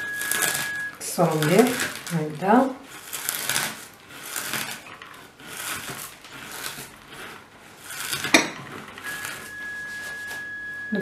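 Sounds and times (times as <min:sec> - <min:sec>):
steady high tone: 0:00.0 - 0:01.0, 0:09.1 - 0:11.0
potato chips crunching: 0:00.0 - 0:08.4.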